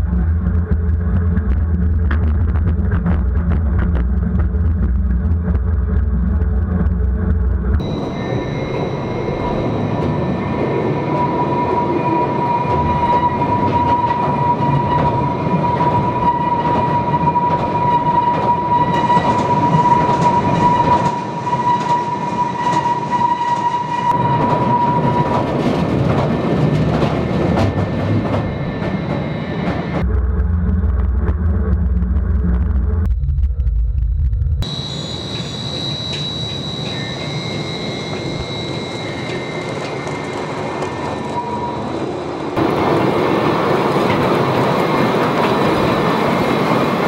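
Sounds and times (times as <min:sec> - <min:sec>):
high electric whine: 0:00.0 - 0:14.0, 0:28.2 - 0:43.1
ore train rumbling in tunnel: 0:00.0 - 0:33.2, 0:34.6 - 0:47.0.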